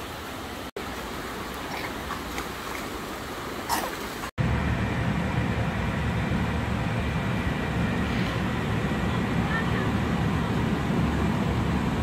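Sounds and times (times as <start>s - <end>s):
stream water rushing: 0.0s - 4.3s
steady low rumble: 4.4s - 12.0s.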